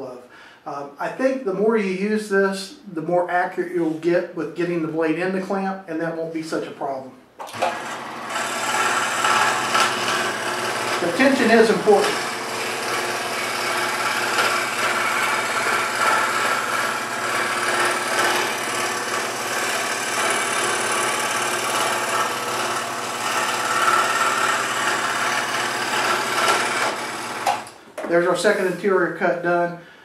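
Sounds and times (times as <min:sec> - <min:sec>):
scroll saw motor hum: 0:07.4 - 0:27.8
saw blade rasping through wood: 0:07.6 - 0:27.8.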